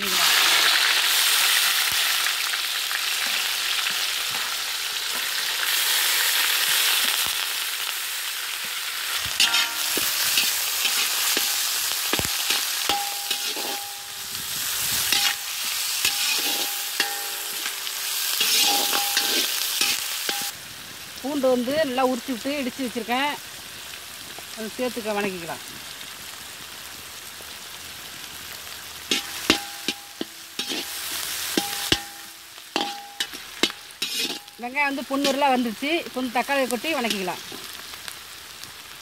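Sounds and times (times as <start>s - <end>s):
onions sizzling in hot oil: 0.0s - 39.0s
metal spatula scraping pan: 9.3s - 20.5s, 29.1s - 35.8s.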